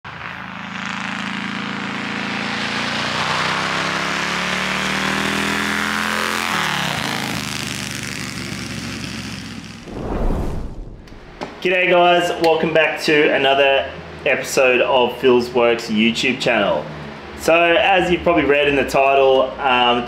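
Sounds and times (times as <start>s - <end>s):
motorcycle engine passing by: 0.1s - 11.4s.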